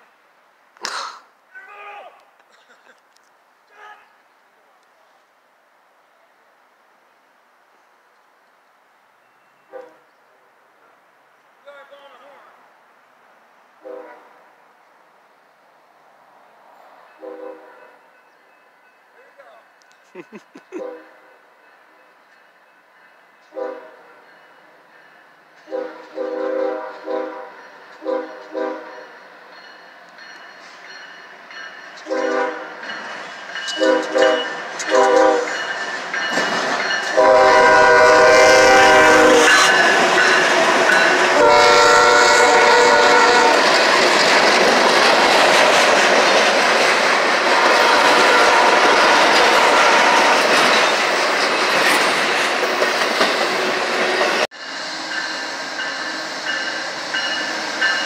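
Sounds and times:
locomotive horn blasts: 9.7 - 10.0, 13.8 - 14.3, 17.2 - 18.0, 23.5 - 24.0, 25.7 - 29.0, 32.0 - 32.8, 33.8 - 35.6, 37.1 - 40.3, 41.0 - 43.7, 47.5 - 50.6
train rumble and wheel clatter: 15.8 - 58.0.

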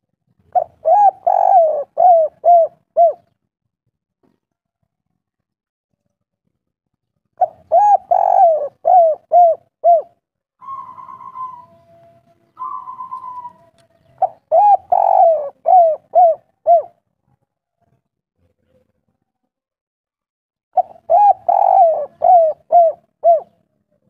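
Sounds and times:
dove cooing: 0.5 - 3.4, 7.4 - 17.0, 20.8 - 23.6.

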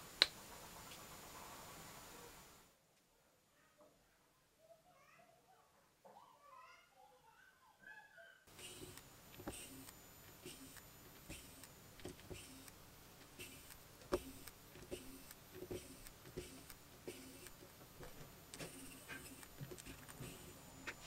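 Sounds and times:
screwdriver bit clicking: 8.8 - 17.6.

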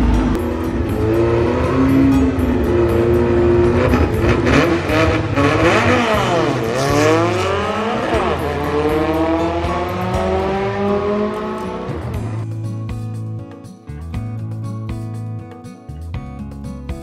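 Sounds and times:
car engine revving: 0.0 - 12.4.

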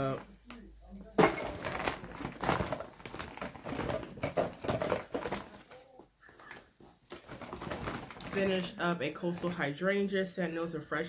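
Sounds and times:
plastic bottles knocking and rustling: 1.0 - 9.7.

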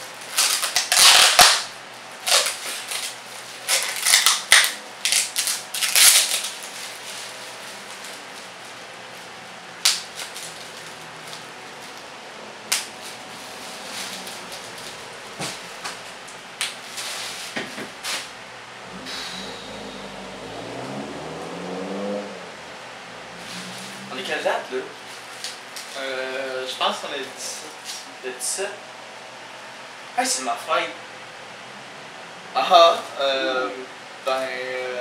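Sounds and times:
bubble wrap popping: 0.2 - 6.8
packing tape ripping off roll: 0.2 - 8.2, 9.8 - 12.0.

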